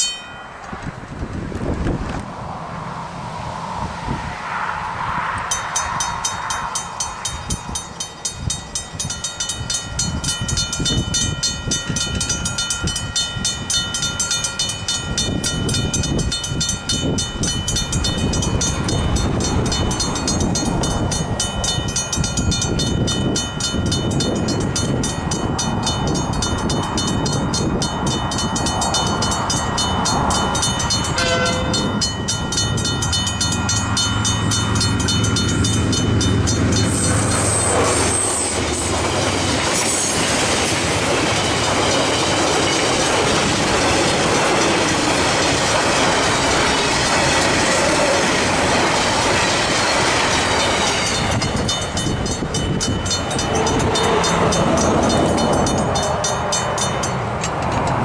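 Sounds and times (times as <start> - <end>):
level crossing bells ringing: 0.0 - 0.6, 5.5 - 38.3, 41.5 - 58.0
locomotive engine drone: 0.0 - 58.0
wagons rumbling over crossing: 0.8 - 58.0
train horn: 31.1 - 32.0.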